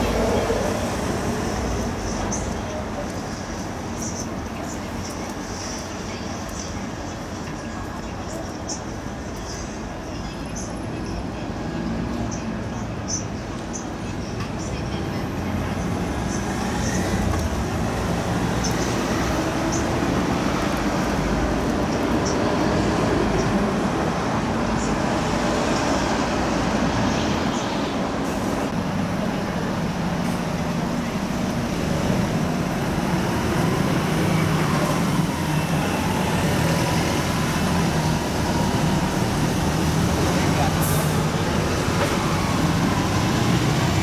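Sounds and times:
cars passing on a wet road: 0:00.0 - 0:07.0, 0:15.9 - 0:44.0.

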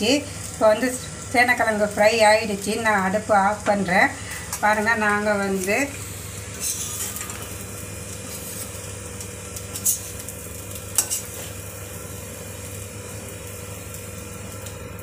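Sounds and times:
faint sizzle: 0:00.0 - 0:15.0
metal spoon scraping a pan: 0:06.5 - 0:07.5, 0:09.7 - 0:10.2, 0:10.9 - 0:11.6.

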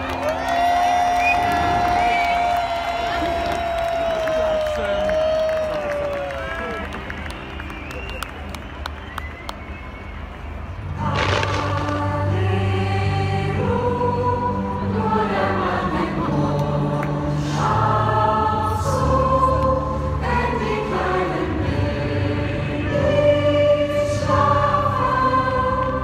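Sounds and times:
low steady accompaniment: 0:04.9 - 0:26.0
choir singing a lullaby: 0:10.9 - 0:26.0.

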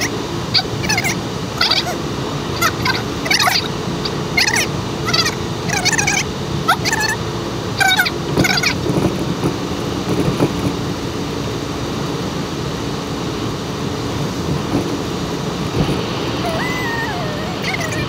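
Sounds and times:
car road and engine noise: 0:00.0 - 0:18.0
high warbling sounds: 0:16.4 - 0:18.0.

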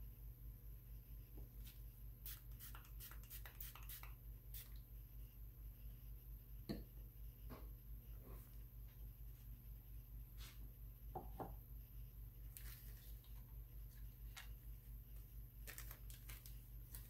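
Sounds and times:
steady low hum: 0:04.1 - 0:15.7.

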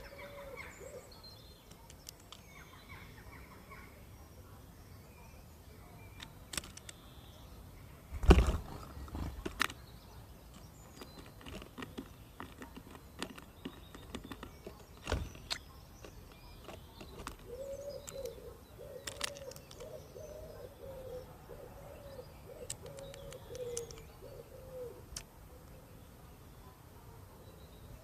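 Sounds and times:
pigeon cooing: 0:00.0 - 0:01.2, 0:12.6 - 0:25.6
birds pecking at wooden feeder: 0:01.5 - 0:02.6, 0:06.0 - 0:07.1, 0:08.1 - 0:20.4, 0:22.5 - 0:24.4.

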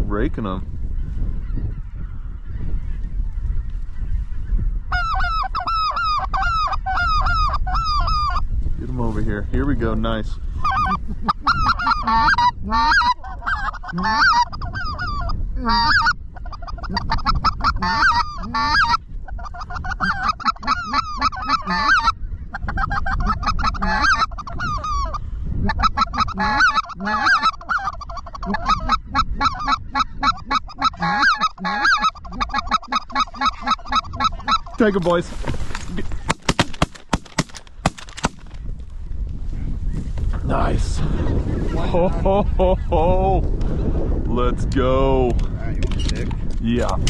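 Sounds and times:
geese honking: 0:04.9 - 0:08.5, 0:10.6 - 0:35.1.

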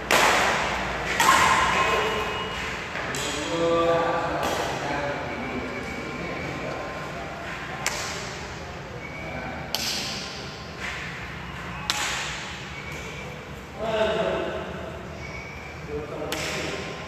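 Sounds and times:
rackets hitting a shuttlecock: 0:00.0 - 0:03.6, 0:04.4 - 0:04.8, 0:07.5 - 0:08.5, 0:09.7 - 0:11.2, 0:11.8 - 0:13.2, 0:16.2 - 0:17.0.

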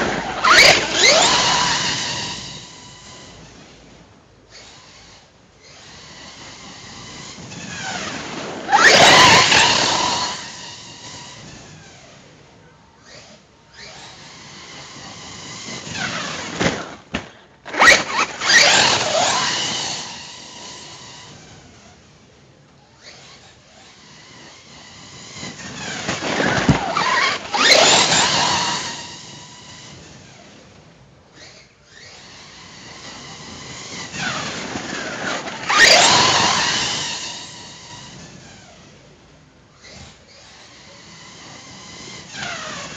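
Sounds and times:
rc truck electric motor whining: 0:00.0 - 0:42.9.

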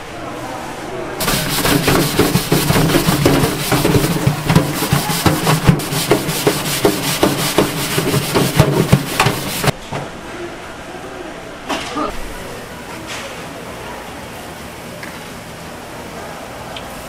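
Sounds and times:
rapid uneven knocking: 0:01.2 - 0:09.7
rubbing or scraping: 0:01.2 - 0:09.8.

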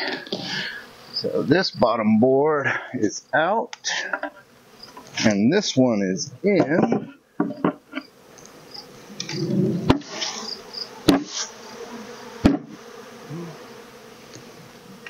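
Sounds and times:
bees buzzing: 0:00.0 - 0:15.0
sharp knocks: 0:11.1 - 0:11.3, 0:12.4 - 0:12.8.

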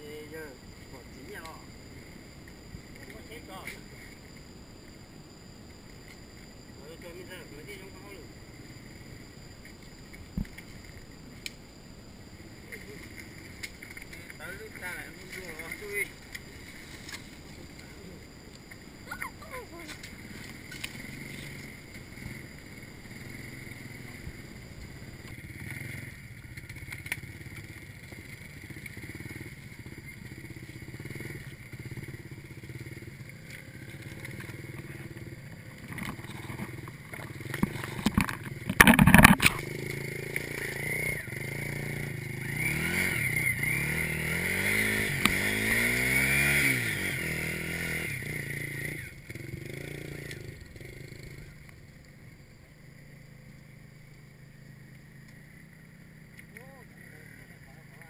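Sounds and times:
small motorcycle engine revving: 0:19.1 - 0:52.4.

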